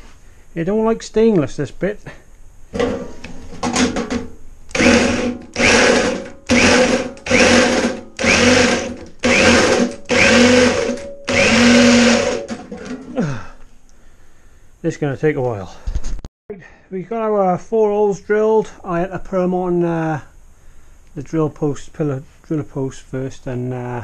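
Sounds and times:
power drill cutting steel: 4.7s - 12.6s.

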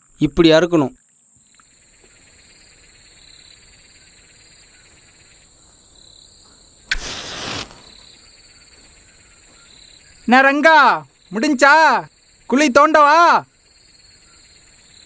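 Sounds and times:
crickets chirping: 0.0s - 15.0s
loud rushing swish: 6.9s - 7.9s.

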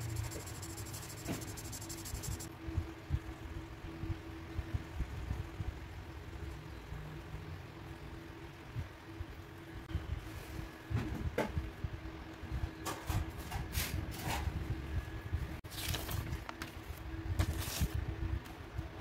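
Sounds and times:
markers scratching on paper: 0.0s - 2.5s
faint steady hum: 0.0s - 12.8s.

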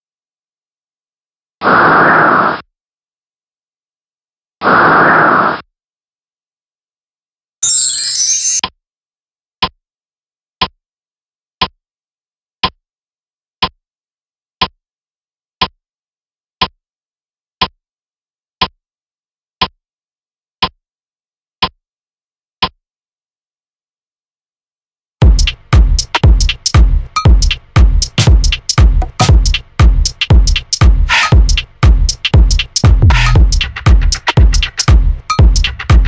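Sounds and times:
clock ticking: 25.2s - 36.0s.

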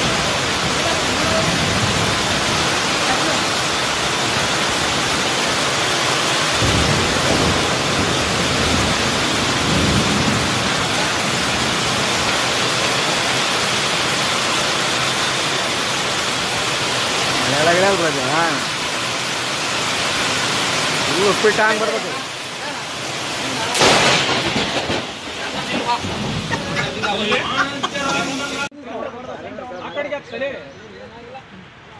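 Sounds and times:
heavy rain: 0.0s - 28.8s.

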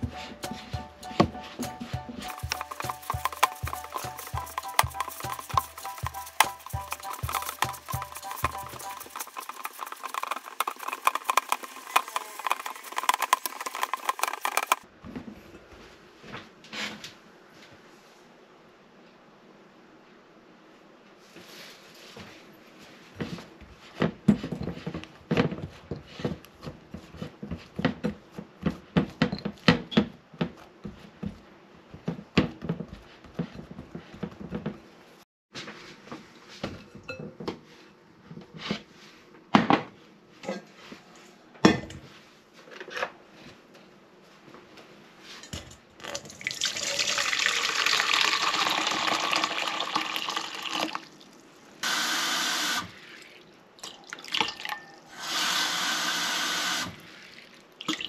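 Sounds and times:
tap water pouring into metal bowl: 46.0s - 51.2s.

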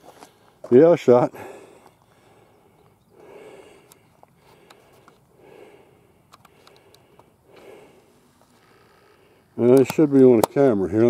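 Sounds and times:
person breathing softly: 1.3s - 9.6s
faint clicks: 6.3s - 7.7s.

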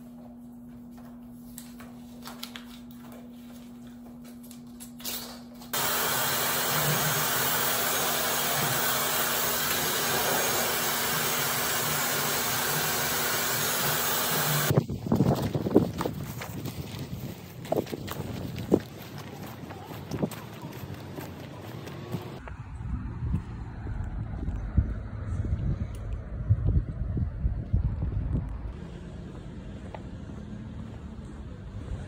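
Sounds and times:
hair dryer blowing: 5.8s - 14.7s.

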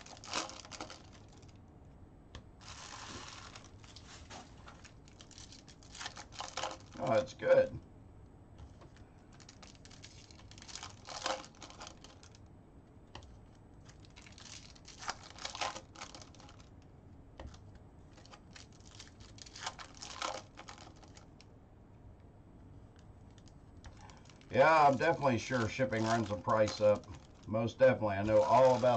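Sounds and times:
foil wrapper tearing and crinkling: 0.0s - 1.6s, 2.6s - 7.2s, 9.3s - 12.4s, 13.8s - 16.7s, 18.1s - 21.3s, 23.4s - 28.9s
faint rustling: 2.6s - 7.6s, 22.6s - 28.9s
cards being handled: 23.4s - 27.6s, 28.2s - 28.9s.

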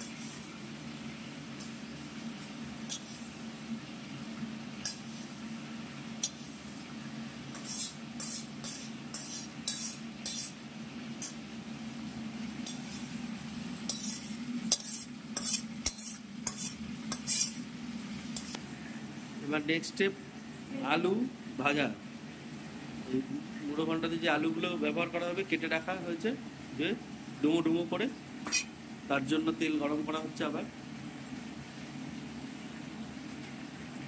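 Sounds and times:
metal spoon scraping a steel pan: 2.9s - 3.3s, 4.8s - 5.3s, 6.2s - 6.5s, 7.5s - 10.6s, 11.2s - 11.4s, 12.6s - 13.2s, 13.8s - 17.6s, 18.4s - 18.6s, 28.5s - 28.7s.

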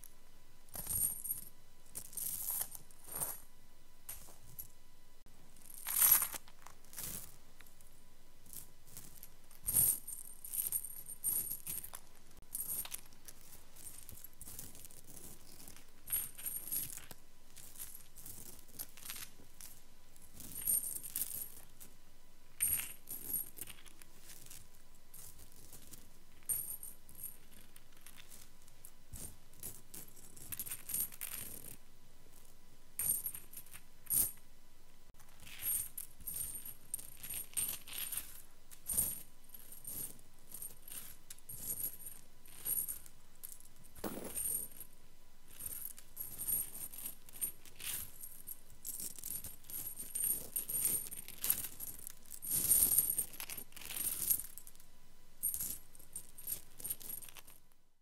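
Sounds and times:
small metal chain jingling: 9.0s - 13.1s, 13.8s - 19.2s, 20.4s - 21.7s, 26.4s - 28.4s, 35.4s - 44.9s, 45.6s - 54.8s, 55.4s - 57.5s.

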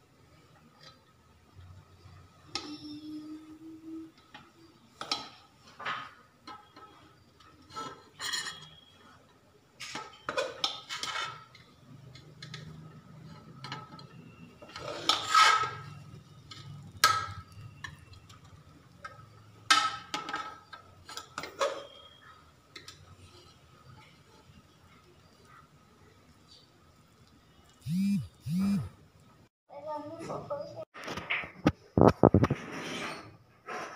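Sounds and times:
metal spoon scraping a pot: 6.4s - 9.2s, 9.8s - 24.2s.

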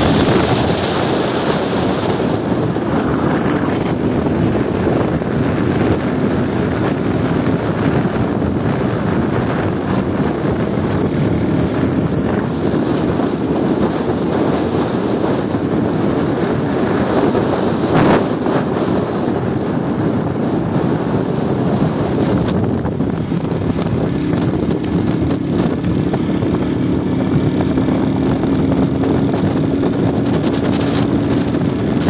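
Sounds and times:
motorcycle engine running: 0.0s - 32.0s
wind rushing over microphone: 0.0s - 32.0s.

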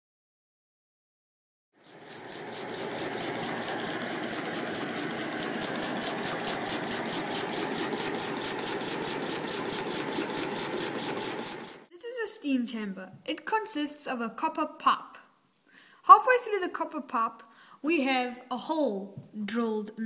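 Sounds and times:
steam engine running: 1.8s - 11.9s.

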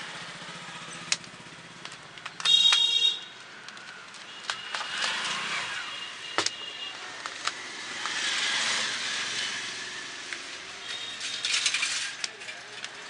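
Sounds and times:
sharp snapping sparks: 1.1s - 5.2s.

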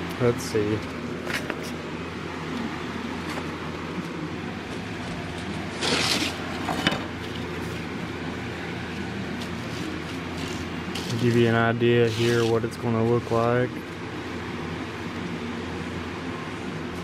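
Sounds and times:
steady mechanical hum: 0.0s - 17.0s.

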